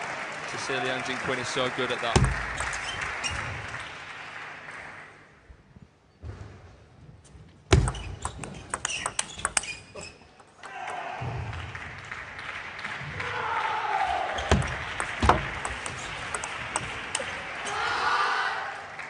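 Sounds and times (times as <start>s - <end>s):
table tennis ball clicking: 7.8s - 9.8s, 14.6s - 17.3s
crowd noise: 12.7s - 19.0s.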